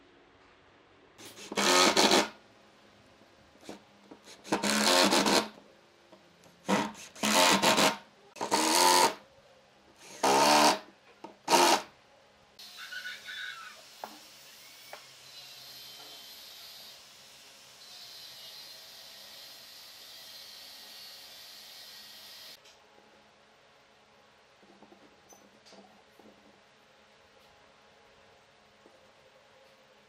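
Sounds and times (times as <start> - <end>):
impact driver driving screws into wood: 1.2 - 2.3, 4.4 - 5.5, 6.6 - 9.2, 10.0 - 11.9
faint steady noise: 2.3 - 4.6, 5.4 - 7.4, 22.5 - 30.0.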